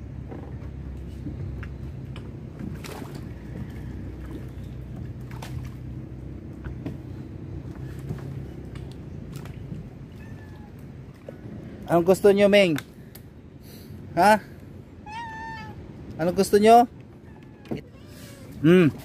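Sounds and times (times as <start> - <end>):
knocks and clicks of boat gear: 0.0 - 10.1, 16.9 - 17.9.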